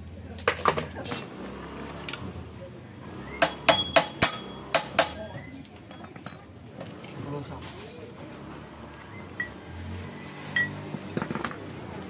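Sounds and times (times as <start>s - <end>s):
tools clinking on metal engine parts: 0.4s - 1.4s, 3.4s - 6.7s, 10.5s - 11.6s.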